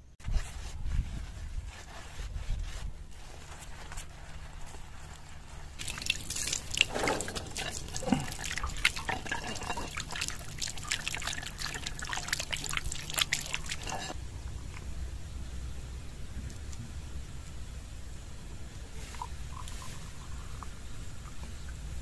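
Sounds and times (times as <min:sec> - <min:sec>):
liquid splashing and dripping: 0:05.8 - 0:14.1.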